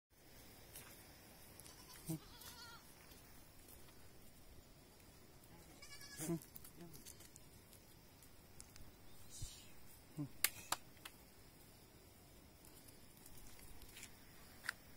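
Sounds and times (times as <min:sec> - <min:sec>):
goat kid bleating: 0:01.6 - 0:02.9, 0:05.6 - 0:07.1
faint ticks: 0:01.6 - 0:04.3, 0:04.9 - 0:08.9.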